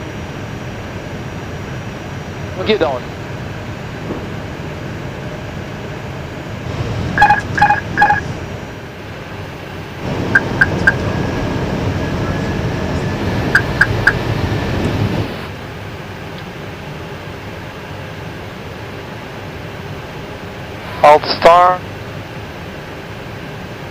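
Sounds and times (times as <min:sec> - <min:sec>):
cockpit airflow noise: 0:00.0 - 0:23.9
short electronic beeps: 0:07.2 - 0:08.3, 0:10.4 - 0:11.0, 0:13.6 - 0:14.2.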